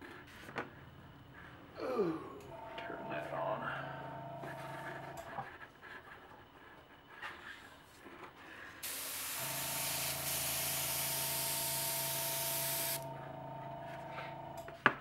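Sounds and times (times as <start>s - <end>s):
airbrush spraying hiss: 8.8s - 13.0s
compressor humming: 8.8s - 14.8s.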